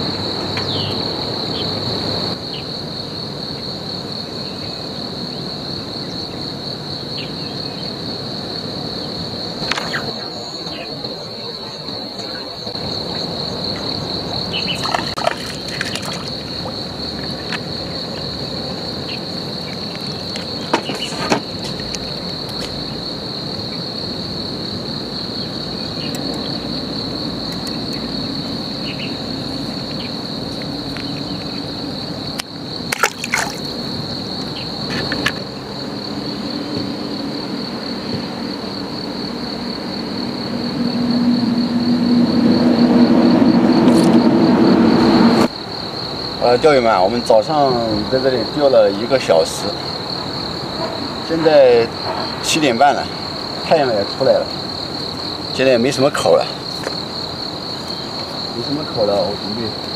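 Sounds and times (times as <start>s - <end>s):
insects trilling: 0.0s - 59.9s
light water splashes: 14.8s - 17.6s, 32.9s - 33.8s
low hum: 40.3s - 45.5s.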